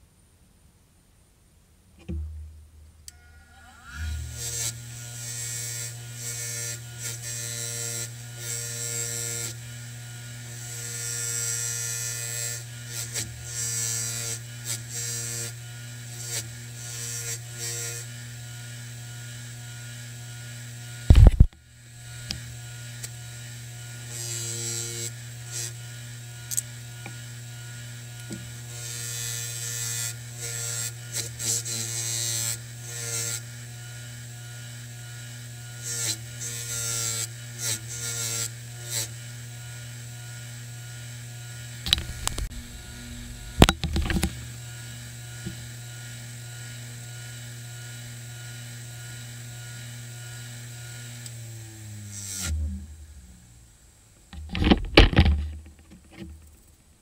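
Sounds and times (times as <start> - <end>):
loud thump: 2.0 - 2.6, 21.1 - 21.5, 41.9 - 44.4, 54.4 - 55.8
bench grinder humming: 3.1 - 53.6
metal rubbing on buffing wheel: 41.9 - 45.6.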